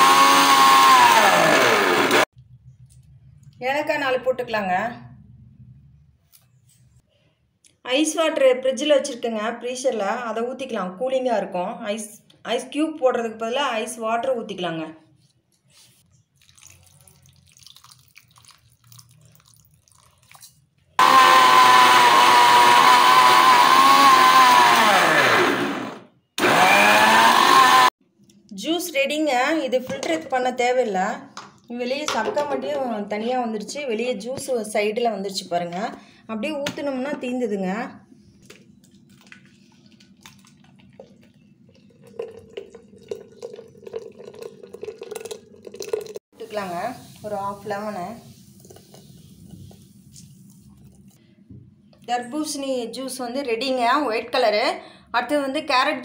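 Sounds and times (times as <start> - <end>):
mixer grinder motor whining: 0.0 - 2.3, 21.0 - 27.9
water pouring into jar: 16.3 - 20.7, 38.9 - 46.2.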